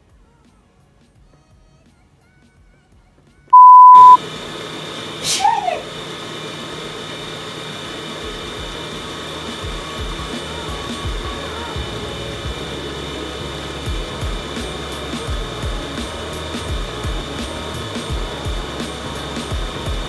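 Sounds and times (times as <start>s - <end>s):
brief sharp sound: 3.6s - 4.2s
faint high whine: 3.6s - 4.2s
pure beep tone: 3.6s - 4.2s.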